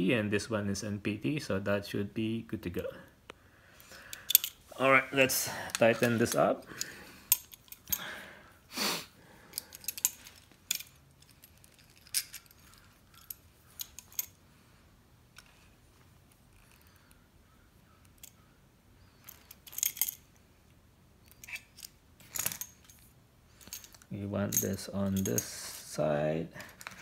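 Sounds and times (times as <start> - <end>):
small metal clinks and clicks: 3.8 - 4.6, 5.7 - 8.1, 9.5 - 14.4, 19.0 - 20.5, 21.2 - 25.8.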